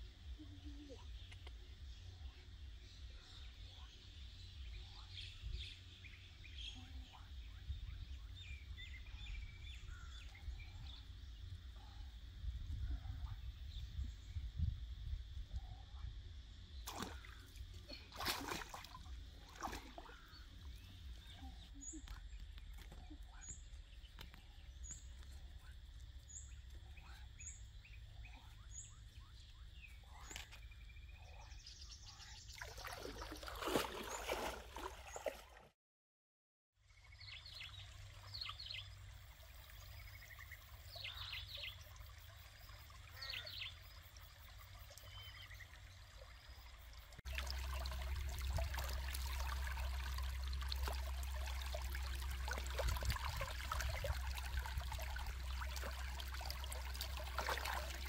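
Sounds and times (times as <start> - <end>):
birds chirping: 0.3 - 12.0, 19.5 - 35.4, 39.7 - 58.0
stream water splashing and trickling: 16.8 - 23.2, 32.3 - 35.7, 37.0 - 58.0.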